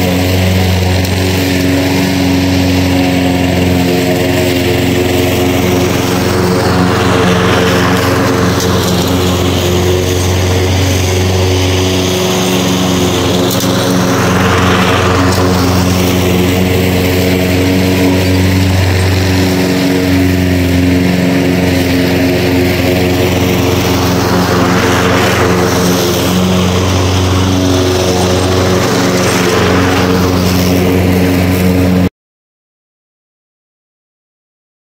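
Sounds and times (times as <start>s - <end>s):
lawn mower engine running: 0.0s - 32.1s.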